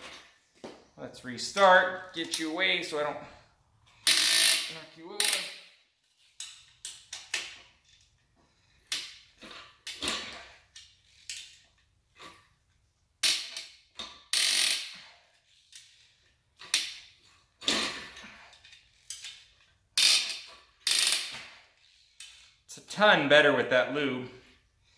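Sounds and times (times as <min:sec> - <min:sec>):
socket ratchet clicking: 0:04.1 - 0:05.5, 0:14.4 - 0:14.9, 0:20.0 - 0:21.3.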